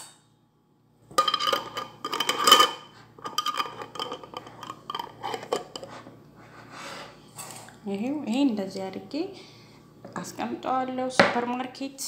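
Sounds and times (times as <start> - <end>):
glass clinking: 1.2 - 5.7
metal utensils clattering: 1.2 - 5.9.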